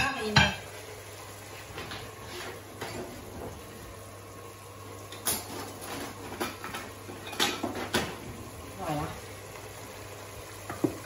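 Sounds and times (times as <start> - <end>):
cookware clattering: 0.0 - 0.7, 5.2 - 8.2.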